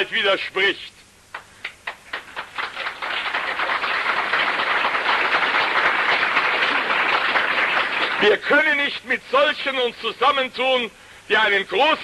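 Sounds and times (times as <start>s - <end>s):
audience applause: 1.6s - 8.5s.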